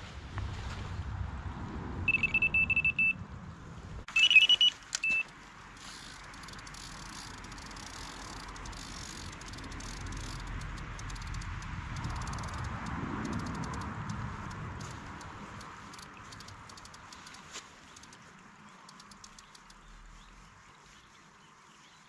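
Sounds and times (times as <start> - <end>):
electronic bite alarm beeping: 2.1 - 3.2, 4.1 - 5.3
faint fast ticking: 5.9 - 18.2, 18.8 - 20.2.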